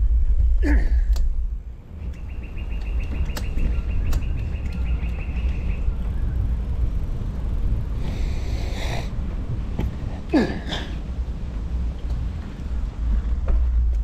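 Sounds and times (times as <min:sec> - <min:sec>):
road rumble: 0:00.0 - 0:14.0
wind buffeting microphone: 0:00.0 - 0:14.0.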